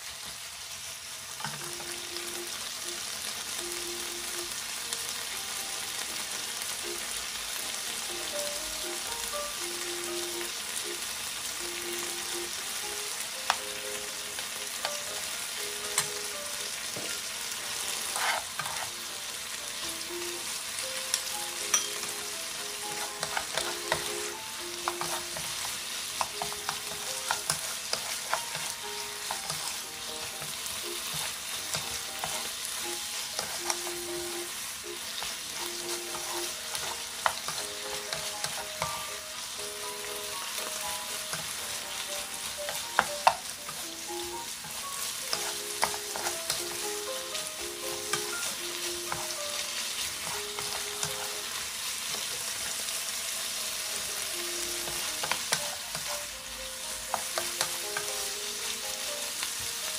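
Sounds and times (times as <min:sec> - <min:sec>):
meat and peppers sizzling in a pan: 0:00.0 - 0:59.9
spatulas scraping against a pan: 0:17.9 - 0:19.1, 0:22.9 - 0:24.1, 0:45.1 - 0:46.8.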